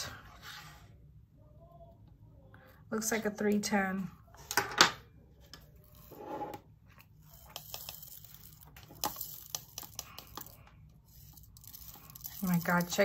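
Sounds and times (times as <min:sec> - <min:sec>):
small beads pattering into container: 0:07.2 - 0:13.0.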